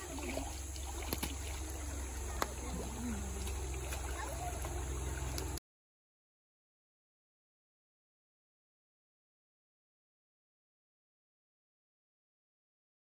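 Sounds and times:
faint children's voices: 0.0s - 5.6s
river water sloshing: 0.0s - 5.6s.

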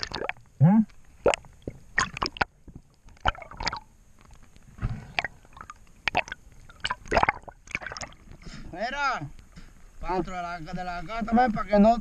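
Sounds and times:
seawater splashing and gurgling: 0.0s - 0.4s, 3.2s - 3.9s, 4.9s - 8.5s.

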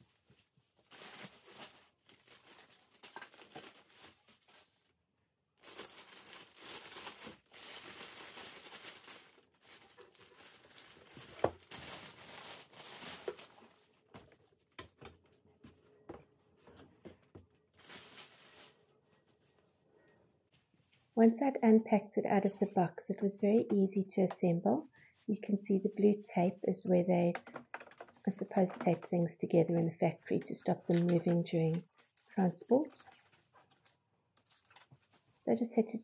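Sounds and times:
plastic bag crinkling: 0.8s - 4.8s, 5.6s - 14.5s, 17.7s - 19.2s, 27.4s - 29.1s, 30.7s - 35.2s.

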